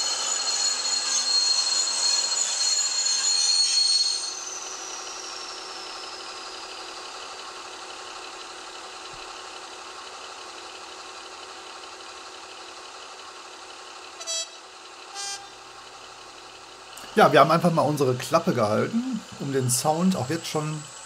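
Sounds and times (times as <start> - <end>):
diesel locomotive engine sound: 0.0 - 21.0
falling whine: 14.2 - 21.0.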